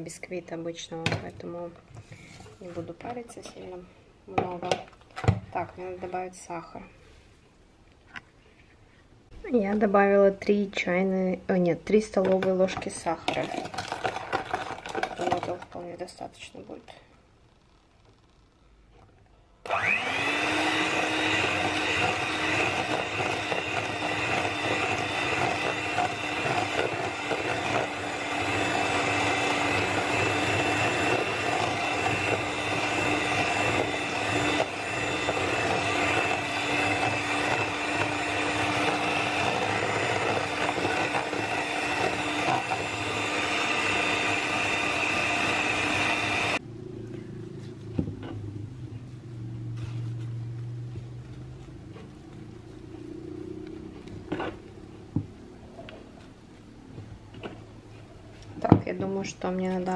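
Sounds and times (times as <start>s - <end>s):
electric hand mixer whining: 12.3s - 16.0s, 19.6s - 46.6s.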